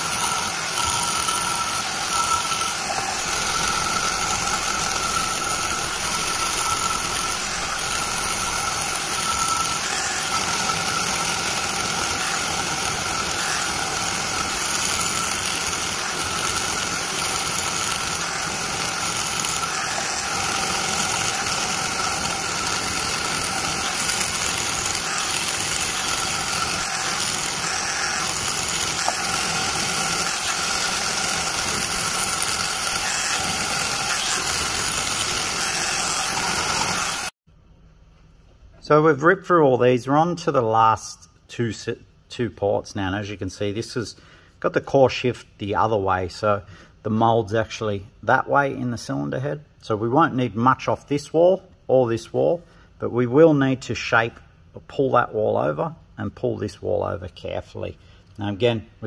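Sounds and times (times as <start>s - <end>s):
die grinder whining on metal: 0.0s - 37.4s.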